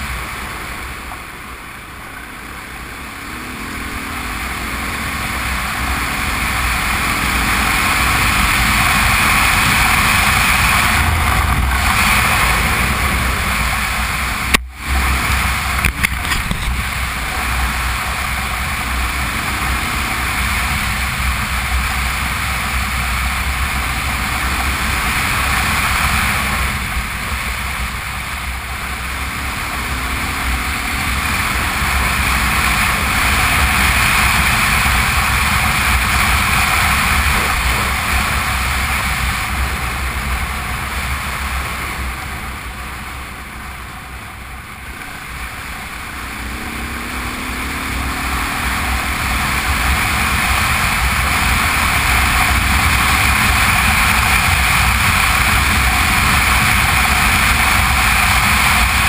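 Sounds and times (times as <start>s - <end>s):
motorcycle engine droning: 0.0s - 59.0s
wind rushing: 24.0s - 43.5s.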